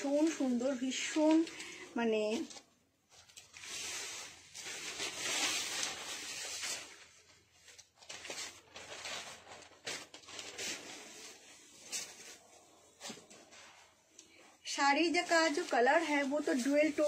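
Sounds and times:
silk fabric rustling and swishing: 8.3s - 17.0s.

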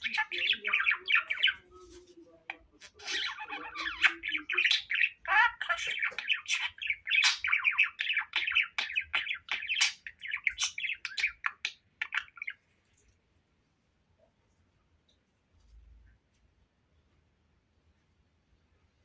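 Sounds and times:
budgerigar warbling: 0.0s - 1.6s, 2.8s - 12.5s.

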